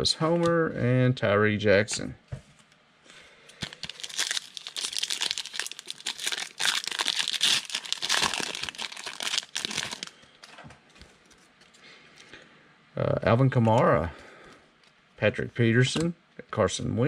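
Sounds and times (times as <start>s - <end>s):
foil pack tearing and crinkling: 3.6s - 10.2s.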